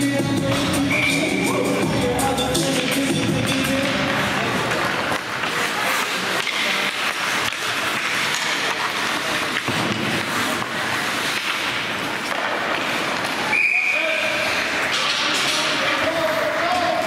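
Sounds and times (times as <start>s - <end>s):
gymnasium crowd noise: 0.0s - 17.0s
high whistle blast: 13.5s - 14.2s.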